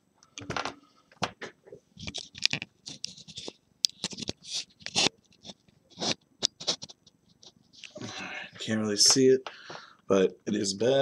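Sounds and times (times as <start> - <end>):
hands scratching plastic casing: 2.0 - 7.5.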